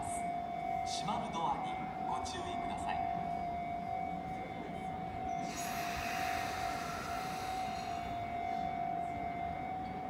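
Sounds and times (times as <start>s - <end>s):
steady high tone: 0.0s - 10.0s
air hiss: 5.5s - 8.1s.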